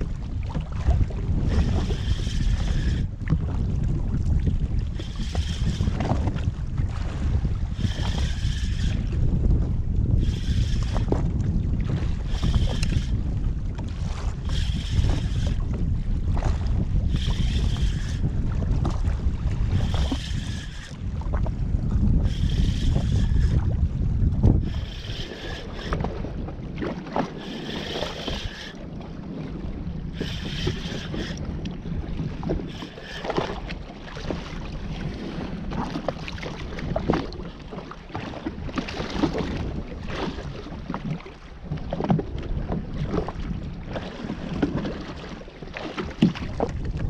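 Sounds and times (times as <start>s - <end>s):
water slapping against hull: 0.0s - 47.0s
wind buffeting microphone: 0.0s - 47.0s
fishing reel whirring: 1.4s - 3.1s, 4.9s - 6.0s, 7.7s - 9.1s, 10.1s - 11.2s, 12.2s - 13.4s, 14.4s - 15.7s, 17.0s - 18.4s, 19.6s - 21.0s, 22.2s - 23.7s, 24.6s - 26.1s, 27.3s - 28.8s, 30.1s - 31.4s, 32.6s - 33.6s.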